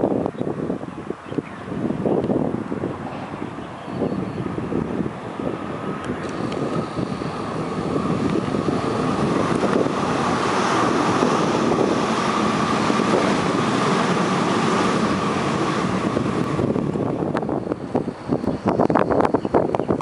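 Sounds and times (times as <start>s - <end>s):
train wheels rumbling on rails: 1.8s - 20.0s
high electric hum: 5.4s - 20.0s.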